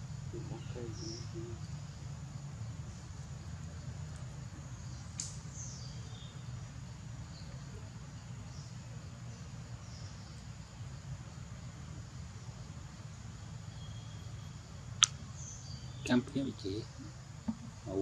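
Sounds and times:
bird chirps: 0:00.3 - 0:01.9, 0:13.5 - 0:18.0.

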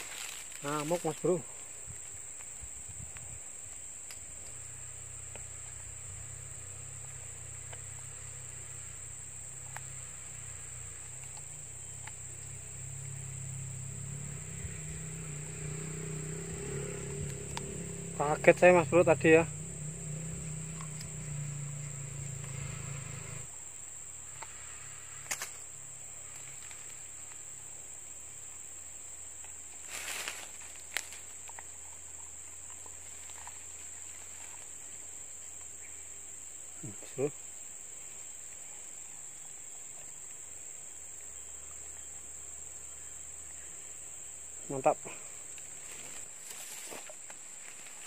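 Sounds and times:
insects droning: 0:00.0 - 0:48.0
faint clicks: 0:11.0 - 0:12.5.

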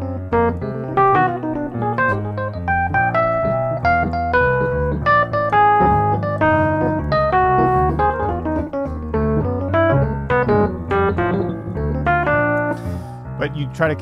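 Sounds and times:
digital pianos playing jazz blues: 0:00.0 - 0:14.0.

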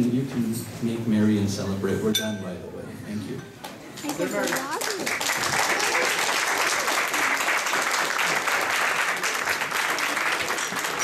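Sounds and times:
crowd clapping: 0:03.6 - 0:11.0.

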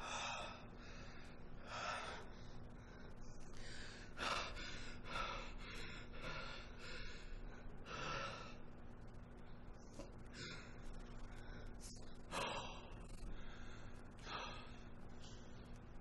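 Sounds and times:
heavy ragged breathing: 0:00.0 - 0:08.7, 0:10.0 - 0:15.6.

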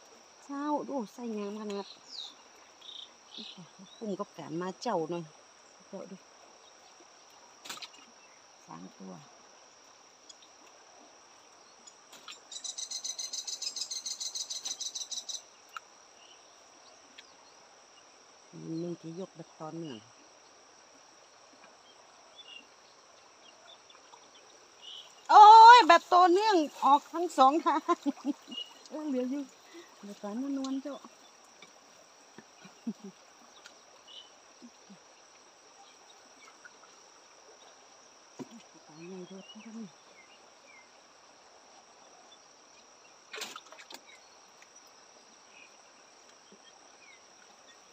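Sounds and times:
crickets trilling: 0:00.0 - 0:47.9.

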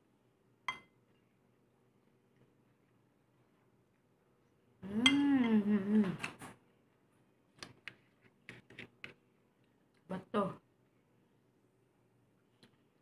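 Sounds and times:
woman humming while eating: 0:04.8 - 0:06.4.

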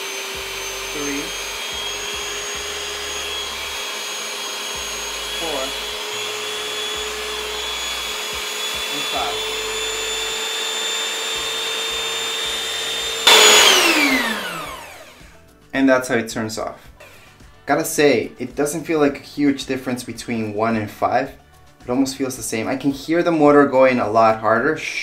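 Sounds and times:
hand mixer motor whine: 0:00.0 - 0:15.4.

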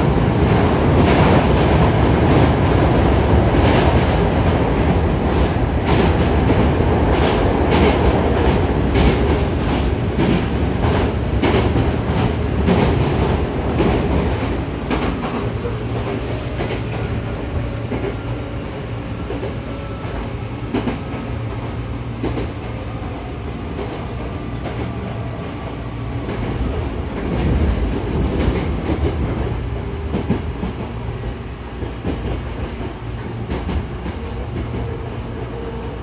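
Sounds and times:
train wheels rumbling on rail: 0:00.0 - 0:36.0
rail joint clicks: 0:00.4 - 0:22.8, 0:23.5 - 0:35.9.

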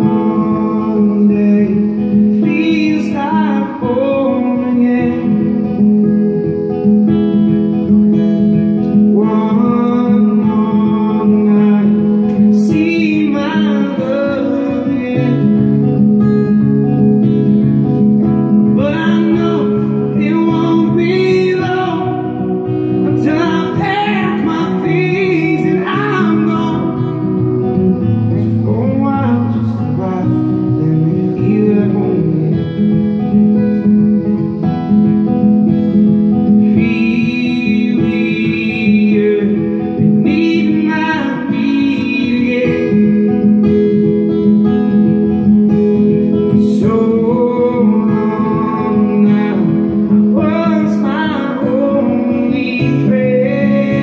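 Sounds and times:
man singing: 0:00.0 - 0:06.4, 0:08.7 - 0:16.4, 0:18.1 - 0:33.9, 0:36.2 - 0:44.2, 0:46.2 - 0:54.0
strummed acoustic guitar: 0:00.0 - 0:54.0.

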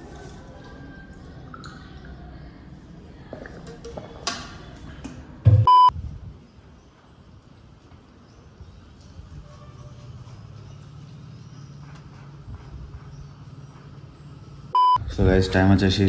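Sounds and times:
short electronic beep: 0:05.6 - 0:05.9, 0:14.8 - 0:15.0.

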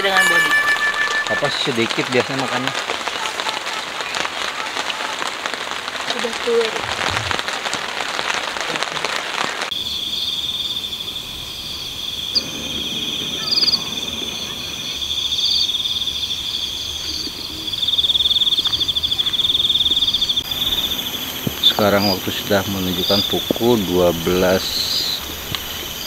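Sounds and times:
rain hissing on a tent: 0:01.4 - 0:26.0
crickets trilling: 0:09.7 - 0:26.0.

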